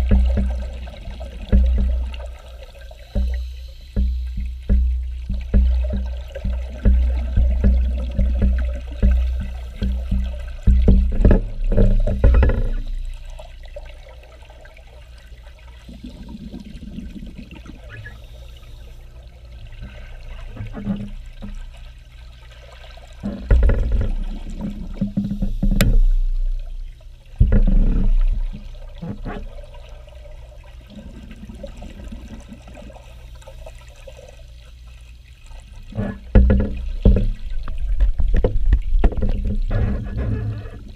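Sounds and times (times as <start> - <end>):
underwater regulator bubbles: 0.0 - 22.1
underwater water noise: 0.0 - 40.9.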